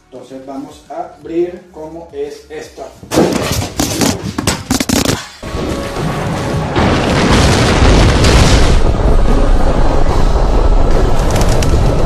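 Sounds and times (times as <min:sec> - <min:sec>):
deep rumbling explosion blast: 0:05.6 - 0:12.0.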